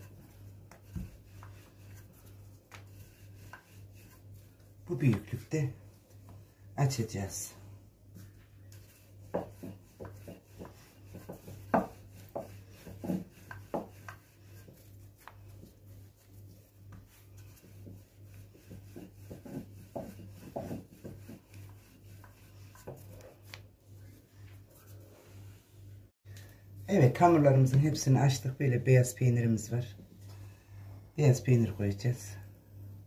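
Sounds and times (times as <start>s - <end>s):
rolling pin knocking and rubbing: 0.0s - 5.4s, 8.1s - 23.7s.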